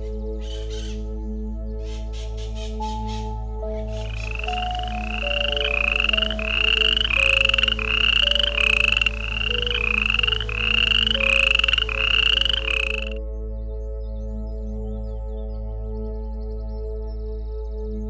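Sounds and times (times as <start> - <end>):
soft ambient music: 0.0 - 18.0
frog calling: 3.7 - 13.2.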